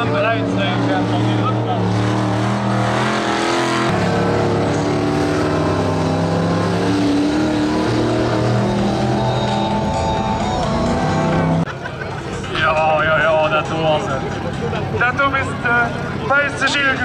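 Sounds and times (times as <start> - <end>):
racing combine harvester engines: 0.0 - 17.0.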